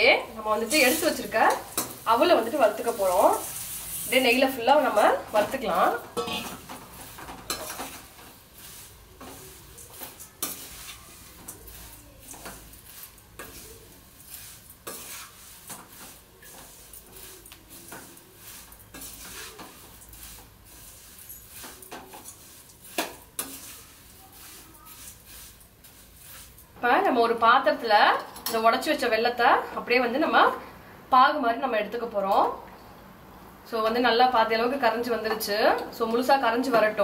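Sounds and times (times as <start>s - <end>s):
sizzling: 0.0s - 37.0s
dry scraping in a pan: 0.3s - 27.3s
spoon clinking against pan: 6.2s - 6.7s.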